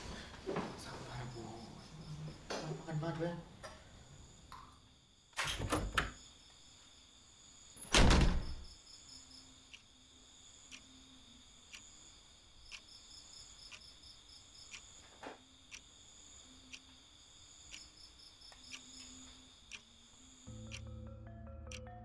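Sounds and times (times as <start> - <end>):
crickets chirping: 0.0 - 22.0
clock ticking: 12.7 - 12.9, 18.7 - 19.9, 20.5 - 21.0, 21.7 - 22.0.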